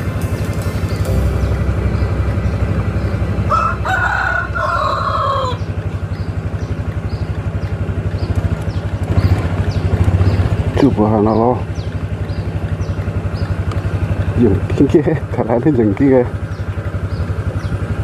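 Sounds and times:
vehicle engine running: 0.0s - 18.0s
rooster crowing: 3.5s - 5.7s.

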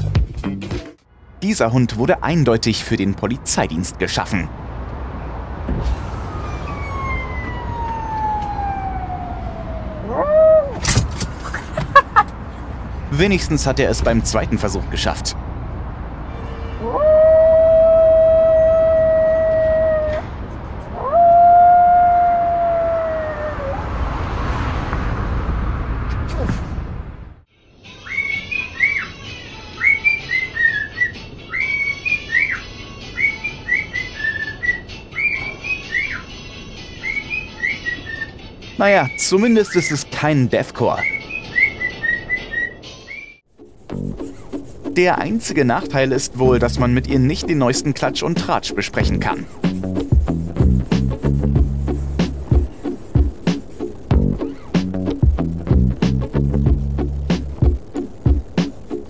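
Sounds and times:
dog howling: 6.5s - 10.8s, 16.8s - 20.2s, 21.0s - 23.9s
cockatiel whistling a tune: 29.8s - 32.6s, 33.2s - 36.2s, 37.0s - 38.4s, 41.0s - 43.4s.

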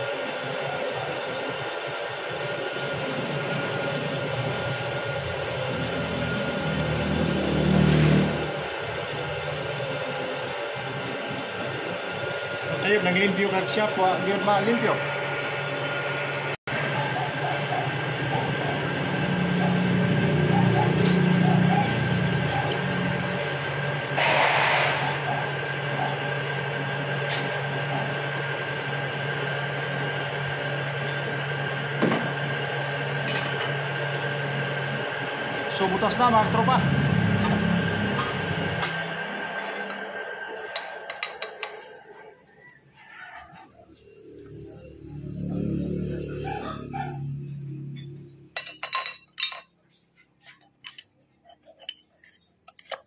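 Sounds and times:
milling machine drilling metal: 0.0s - 7.2s, 10.4s - 18.2s
milling machine motor hum: 0.0s - 24.3s, 25.1s - 42.3s
thin high whine: 12.7s - 16.6s.

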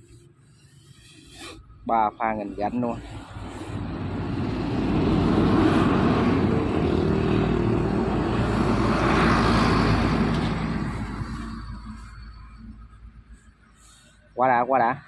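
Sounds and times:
vehicle engine passing: 1.6s - 14.0s.

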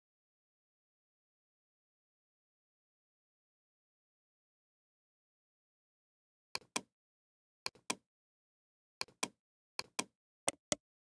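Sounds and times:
computer mouse clicking: 9.0s - 10.8s.

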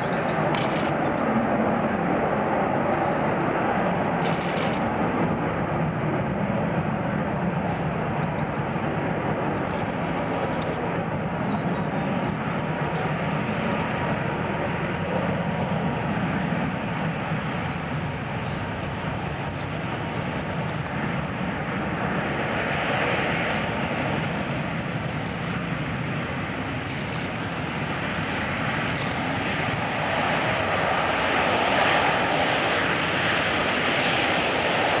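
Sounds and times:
thin steady whine: 0.0s - 5.4s, 9.3s - 11.3s, 12.7s - 15.0s, 19.2s - 21.0s, 23.4s - 31.0s
jet engines rumbling: 0.0s - 35.0s.

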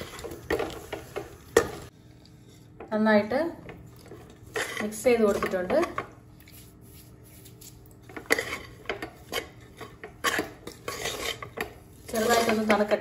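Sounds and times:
metal spoon scraping pot: 4.1s - 6.0s, 8.1s - 13.0s.

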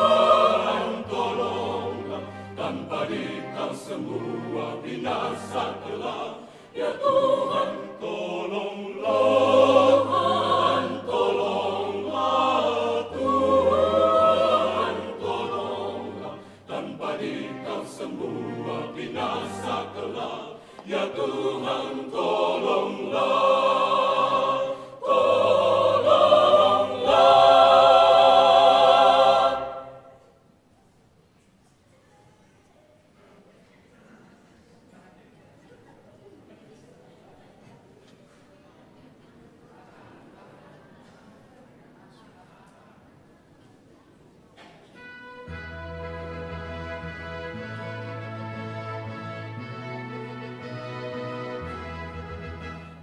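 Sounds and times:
mixed choir singing unaccompanied: 0.0s - 30.4s.

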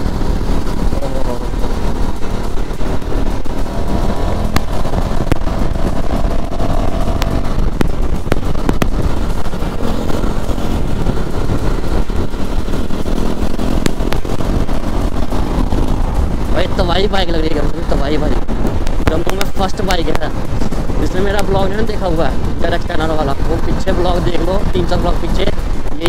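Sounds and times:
motorcycle engine running: 0.0s - 26.0s
tyre noise: 0.0s - 26.0s
wind rush over helmet microphone: 0.0s - 26.0s
short sharp pops: 7.1s - 9.1s.

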